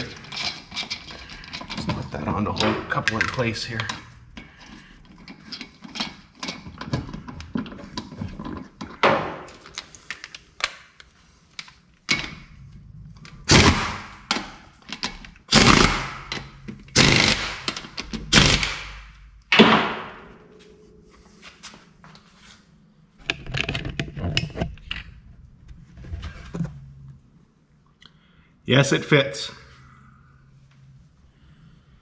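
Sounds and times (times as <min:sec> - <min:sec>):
pneumatic impact wrench bursts: 0:13.5 - 0:14.2, 0:15.5 - 0:19.0.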